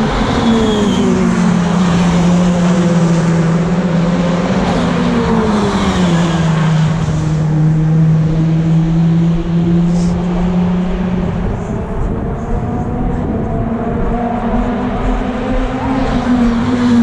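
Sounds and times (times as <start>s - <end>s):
race car engines at speed: 0.0s - 17.0s.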